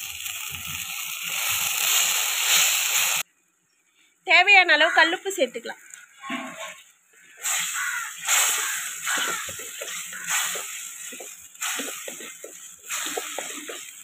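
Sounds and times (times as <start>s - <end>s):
steady sizzle: 0.0s - 3.6s, 5.1s - 14.0s
wooden spatula scraping pot: 6.2s - 14.0s.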